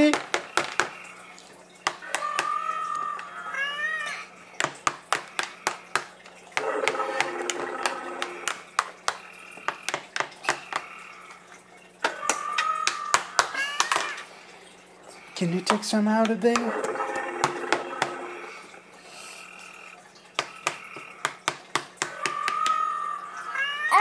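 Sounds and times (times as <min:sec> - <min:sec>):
child's high vocal sounds: 0:23.8 - 0:24.0.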